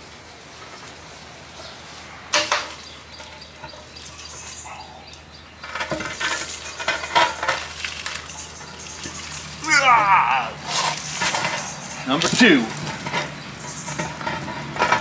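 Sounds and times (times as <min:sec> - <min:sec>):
concrete ring rolling over dry leaves: 0:00.0 - 0:15.0.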